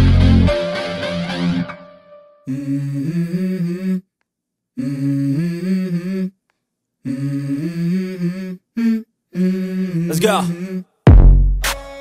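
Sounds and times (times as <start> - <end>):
wordless vocal melody: 0.0 - 4.2, 4.8 - 6.4, 7.0 - 11.0.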